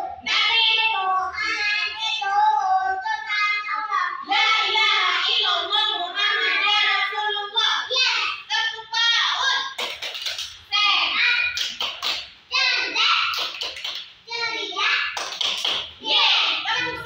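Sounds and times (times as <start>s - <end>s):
young children singing: 0.0s - 9.8s, 16.0s - 17.0s.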